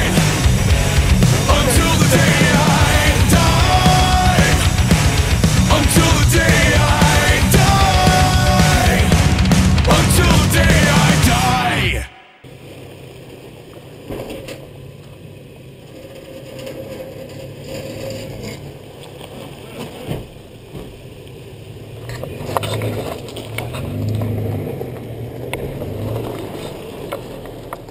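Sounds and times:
engine running low: 0.0s - 14.0s.

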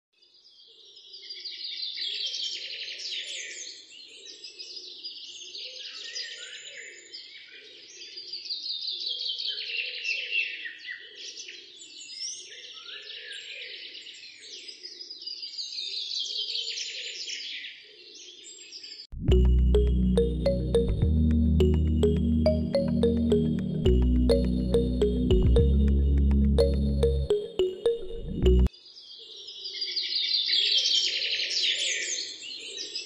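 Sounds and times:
low pulsing sound: 19.2s - 27.3s.

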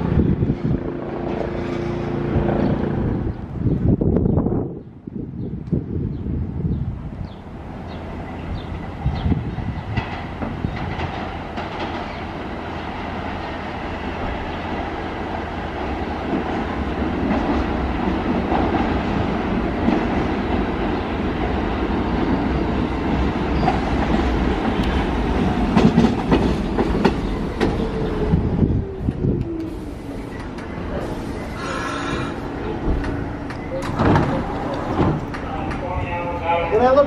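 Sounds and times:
subway train wheels clacking: 7.9s - 37.0s.

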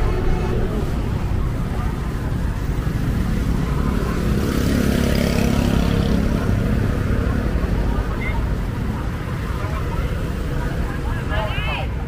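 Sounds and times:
low rumble of road noise: 0.0s - 12.0s
motorbike engine passing: 2.4s - 11.1s.

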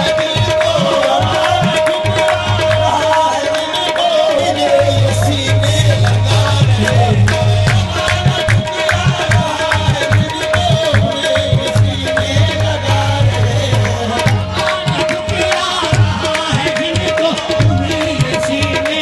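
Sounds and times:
harmonium: 0.0s - 19.0s
people singing: 0.0s - 19.0s
tabla drumming: 0.0s - 19.0s.

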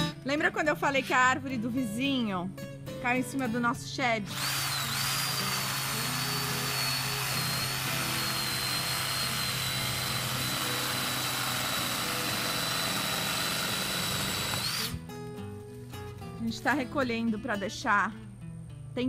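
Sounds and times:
electric saw cutting wood: 4.3s - 15.0s.

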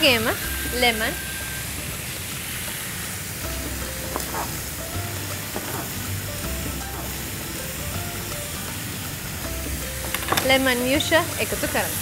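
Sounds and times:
chicken frying in hot oil: 0.0s - 12.0s
light background music: 0.0s - 12.0s.

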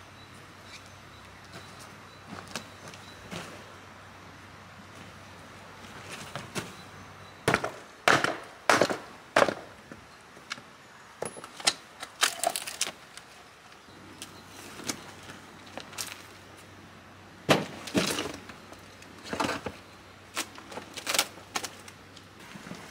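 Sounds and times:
wooden boards cracking apart: 12.1s - 13.1s, 17.5s - 18.5s, 20.4s - 21.9s.

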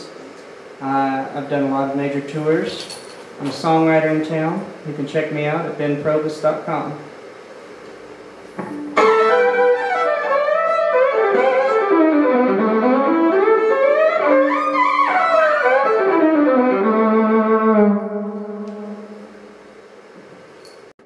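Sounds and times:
solo fiddle playing: 8.9s - 19.2s.

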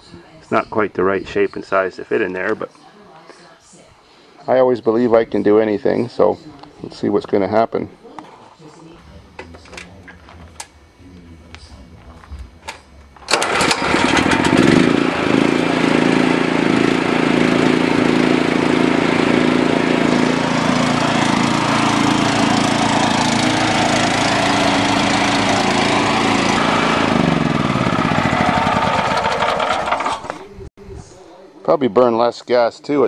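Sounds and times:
small engine running: 13.3s - 30.4s.

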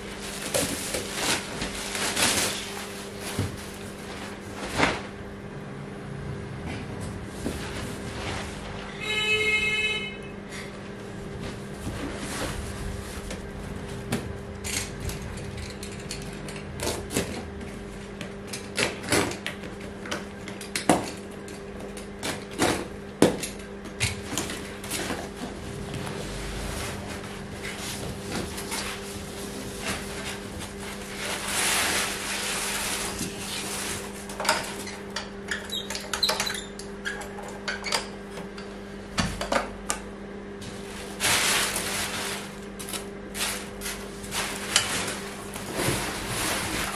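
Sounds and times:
steady low hum: 0.0s - 35.4s
cardboard rustling and scraping: 0.2s - 5.1s, 7.3s - 9.1s, 11.4s - 14.1s, 24.6s - 34.3s, 40.6s - 46.9s.

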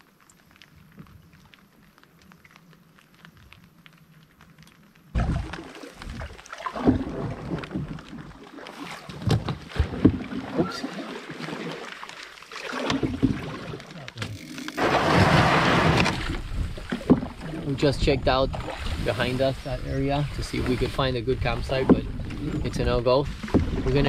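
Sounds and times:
paddle strokes splashing: 5.2s - 24.0s
hull grinding on gravel: 13.1s - 24.0s
paddle knocking on hull: 15.0s - 17.8s, 21.5s - 22.6s, 23.3s - 24.0s.

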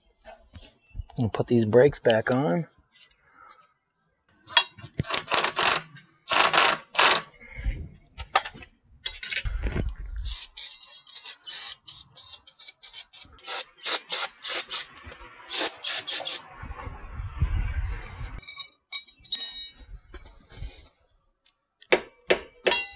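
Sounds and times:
aerosol spray can hissing: 15.5s - 16.4s
dull low thumps: 16.5s - 18.4s.

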